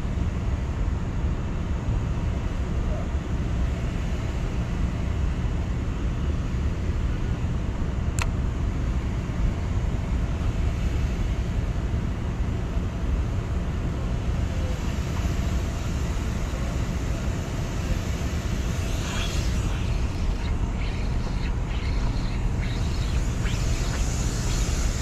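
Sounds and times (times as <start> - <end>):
ship machinery rumbling: 15.4 - 25.0.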